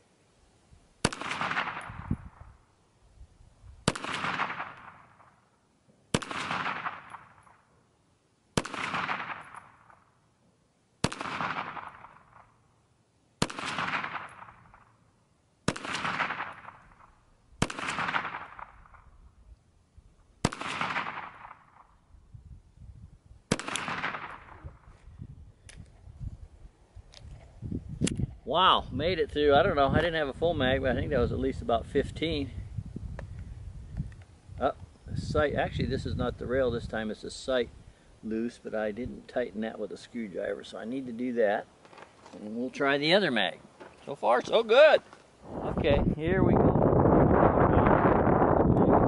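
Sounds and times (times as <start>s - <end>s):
pistol shots with echo: 1.0s - 2.4s, 3.8s - 5.4s, 6.1s - 7.7s, 8.6s - 10.1s, 11.0s - 12.6s, 13.4s - 14.9s, 15.6s - 19.1s, 20.4s - 22.0s, 23.5s - 24.8s.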